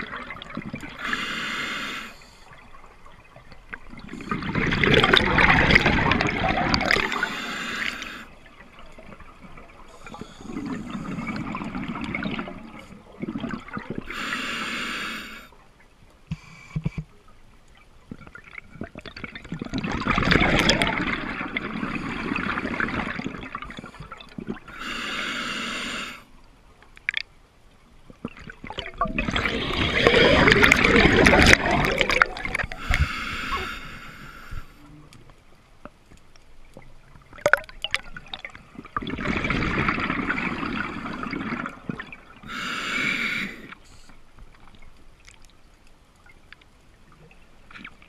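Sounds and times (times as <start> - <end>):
exhaled bubbles gurgling: 0.0 - 15.5, 18.1 - 26.2, 28.2 - 34.8, 37.2 - 43.7
regulator hissing inhalations: 1.0 - 2.5, 7.0 - 8.3, 14.1 - 15.5, 24.7 - 26.3, 32.7 - 34.8, 42.5 - 44.1.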